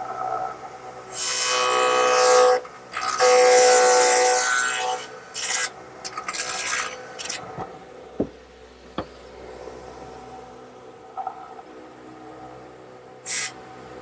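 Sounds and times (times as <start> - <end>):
saw cutting wood: 1.1 - 7.6, 13.2 - 13.6.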